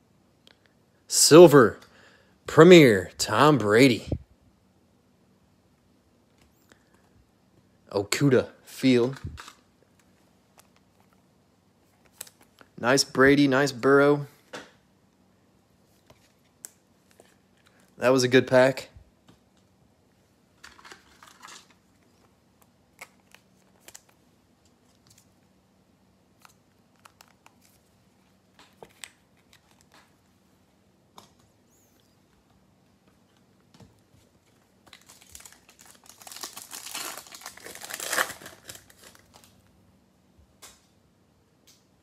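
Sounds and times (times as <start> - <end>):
foil pack tearing: 35.0 - 39.5.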